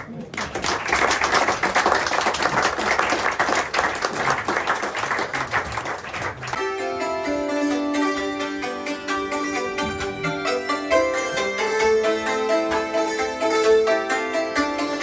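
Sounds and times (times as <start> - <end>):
audience applauding: 0.0 - 6.7
hammered dulcimers playing: 6.6 - 15.0.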